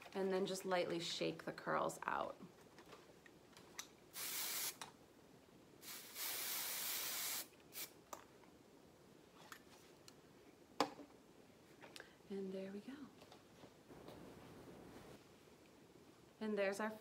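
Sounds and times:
aerosol spray hissing: 0:04.1 - 0:04.8, 0:05.8 - 0:08.0.

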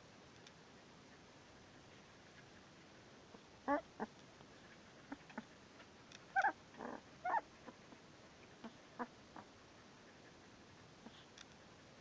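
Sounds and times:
puppy whimpering: 0:03.6 - 0:04.1, 0:06.3 - 0:07.9
puppy breathing: 0:03.6 - 0:12.0.

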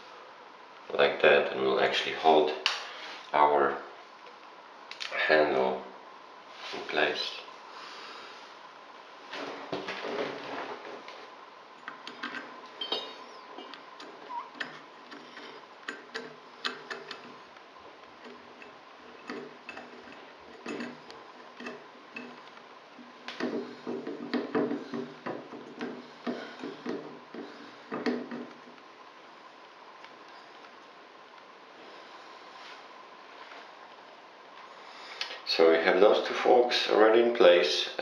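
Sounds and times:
handling noise: 0:09.2 - 0:28.8.

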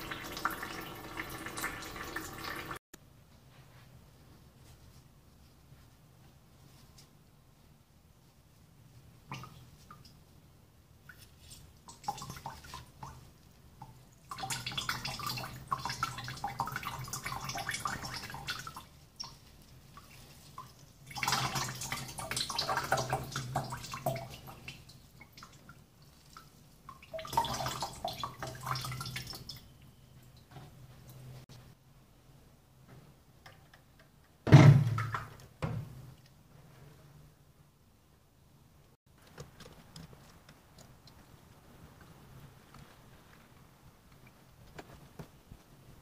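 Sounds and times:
liquid dripping and trickling: 0:11.0 - 0:31.3.

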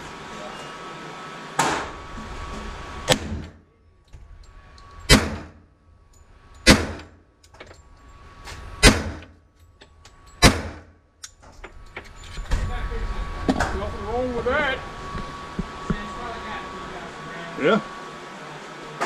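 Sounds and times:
pistol shots indoors: 0:05.1 - 0:05.7, 0:06.6 - 0:07.2, 0:08.8 - 0:09.3, 0:10.4 - 0:11.0.

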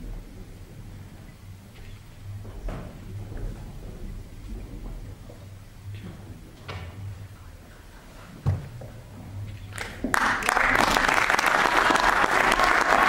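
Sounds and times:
audience applause: 0:09.7 - 0:13.0.

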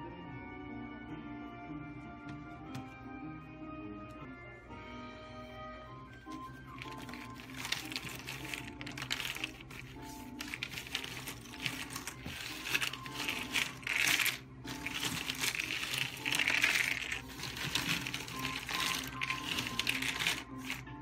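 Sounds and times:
puzzle pieces clattering on table: 0:06.7 - 0:20.9.

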